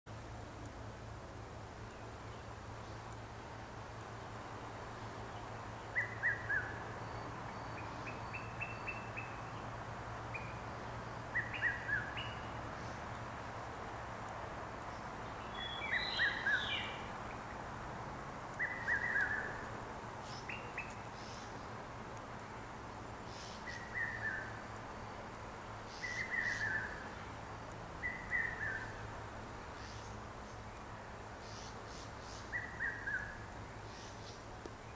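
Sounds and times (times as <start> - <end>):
birds calling: 5.3 - 9.7, 10.3 - 13.4, 14.8 - 17.8, 18.5 - 21.8, 23.2 - 27.4, 28.0 - 34.9.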